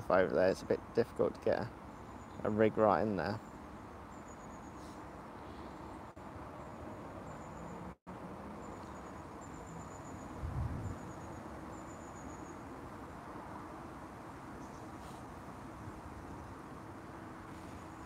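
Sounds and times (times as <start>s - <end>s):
insect chirping trills: 3.4s - 7.9s, 8.6s - 12.8s
wind on microphone: 10.3s - 11.1s.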